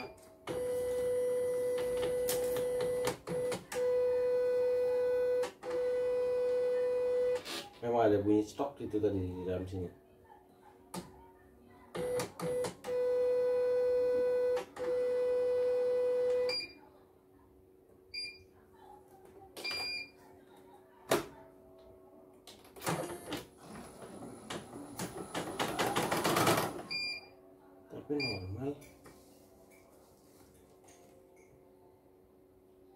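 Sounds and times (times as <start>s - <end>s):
machine beeps: 12.0s - 16.8s, 26.9s - 27.4s, 28.2s - 28.6s.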